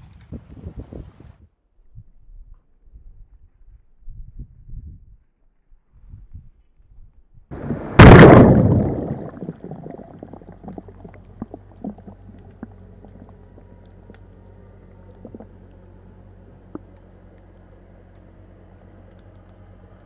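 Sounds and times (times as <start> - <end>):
low underwater hum: 7.5 - 20.0
pot splashing into water: 7.6 - 12.1
small underwater clicks and knocks: 8.2 - 15.9, 16.5 - 20.0.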